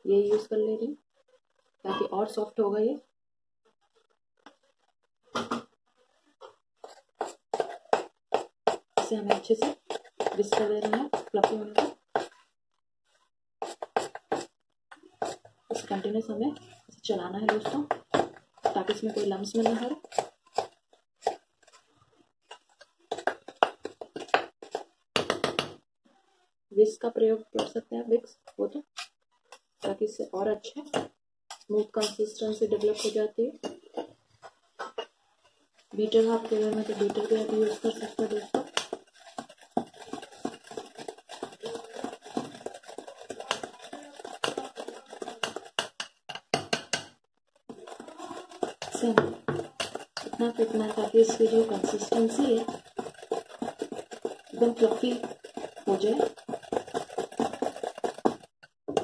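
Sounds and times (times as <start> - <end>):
whisk scraping glass bowl: 6.8 - 12.4, 13.6 - 14.5, 15.2 - 21.9, 35.9 - 46.1, 47.7 - 58.6.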